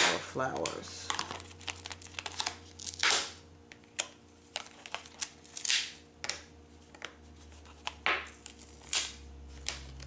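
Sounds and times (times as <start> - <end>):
plastic packaging rustling: 0.6 - 3.1.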